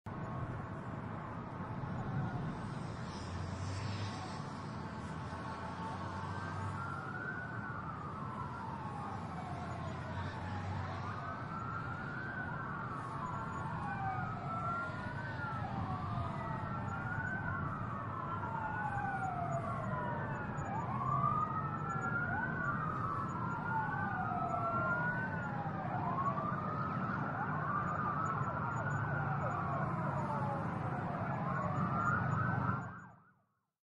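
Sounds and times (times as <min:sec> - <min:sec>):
low traffic rumble: 0:00.1 - 0:32.8
emergency sirens wailing: 0:00.1 - 0:33.4.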